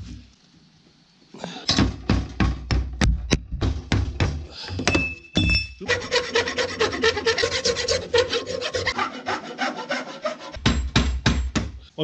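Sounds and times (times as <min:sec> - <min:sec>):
file scraping on steel: 0:05.8 - 0:10.7.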